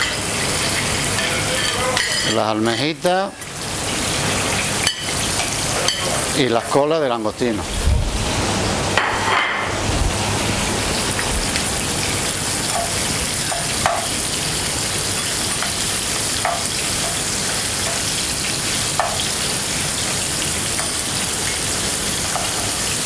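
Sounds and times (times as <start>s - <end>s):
seafood sizzling in a frying pan: 0.0s - 7.4s, 8.6s - 23.0s
metal spatula knocking a pan: 12.7s - 14.2s, 16.4s - 17.2s, 19.0s - 19.2s.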